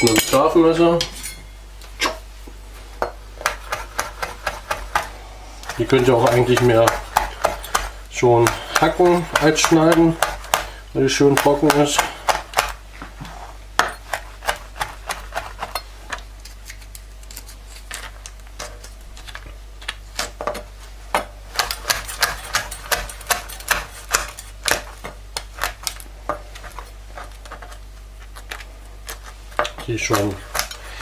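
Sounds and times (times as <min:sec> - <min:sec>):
knife chopping on plastic board: 0:03.4 - 0:12.8, 0:13.8 - 0:15.8, 0:19.8 - 0:27.8, 0:28.5 - 0:30.8.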